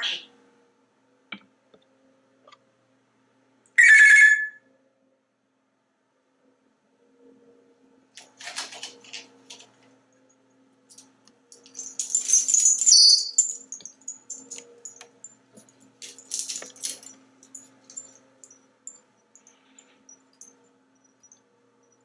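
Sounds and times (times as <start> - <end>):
parrot high whistle: 3.8 - 4.6.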